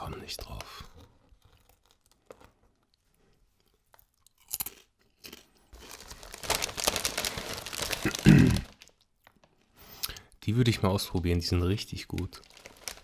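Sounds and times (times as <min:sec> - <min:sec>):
potato chips crunching: 0:00.8 - 0:03.0, 0:03.6 - 0:09.1, 0:12.0 - 0:13.0.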